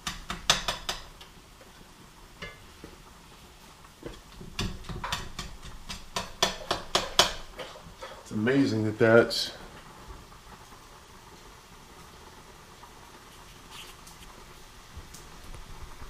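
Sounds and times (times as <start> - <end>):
utensil scraping frying pan: 4.0 - 8.4.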